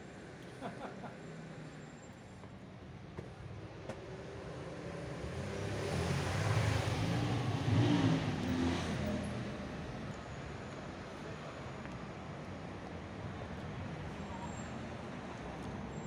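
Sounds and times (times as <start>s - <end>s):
vehicle driving past: 4.6s - 10.0s.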